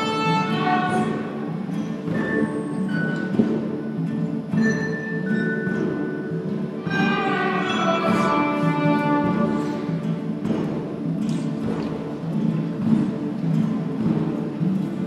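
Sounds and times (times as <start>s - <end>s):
violins and guitars ensemble: 0.0s - 15.0s
high ringing notes: 4.0s - 10.0s.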